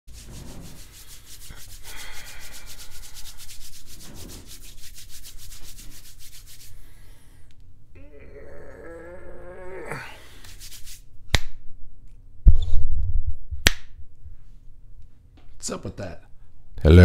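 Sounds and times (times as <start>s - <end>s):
hands rubbing together: 0.1s - 7.1s, 10.2s - 11.5s.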